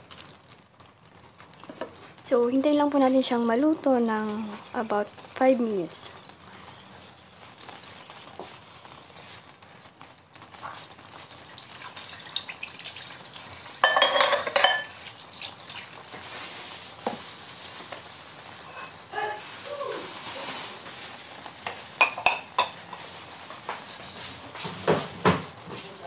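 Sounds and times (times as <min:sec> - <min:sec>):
food sizzling in a frying pan: 0:00.0 - 0:26.0.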